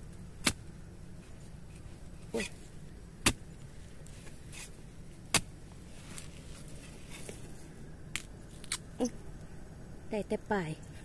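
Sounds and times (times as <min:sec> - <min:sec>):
spade striking dry soil: 0:00.4 - 0:00.7, 0:03.2 - 0:03.6, 0:04.2 - 0:05.6
spade blade scraping earth: 0:04.0 - 0:07.6.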